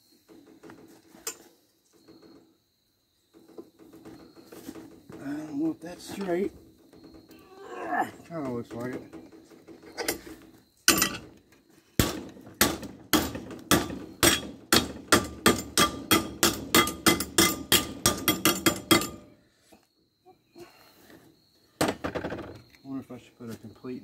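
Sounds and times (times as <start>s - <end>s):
hammer beating on metal pipe: 12.0s - 19.3s.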